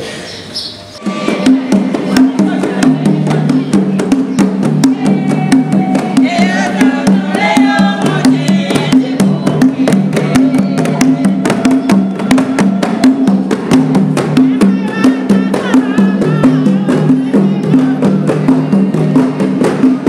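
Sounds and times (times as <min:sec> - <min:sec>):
choir singing: 0:01.0 - 0:19.7
hand drums beating: 0:01.0 - 0:20.0.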